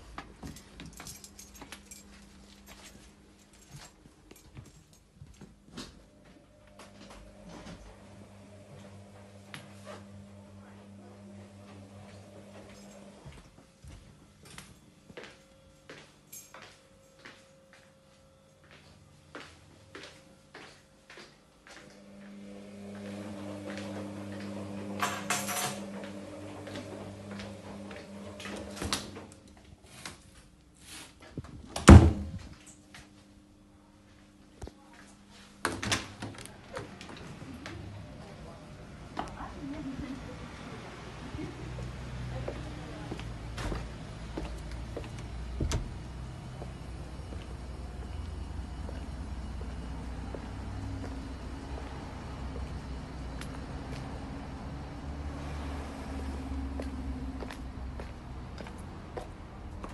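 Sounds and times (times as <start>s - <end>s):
soft footsteps: 0.0s - 7.8s, 41.4s - 54.2s, 56.7s - 59.9s
appliance electrical hum: 0.0s - 59.9s.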